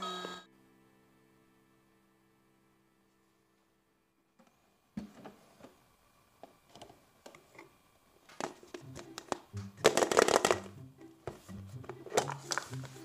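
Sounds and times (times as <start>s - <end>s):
plastic clicks and clattering: 8.3s - 10.7s.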